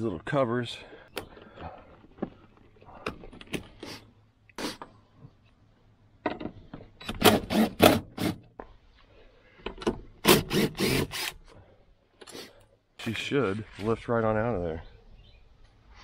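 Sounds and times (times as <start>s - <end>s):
cordless driver pulsing: 10.2s - 11.4s.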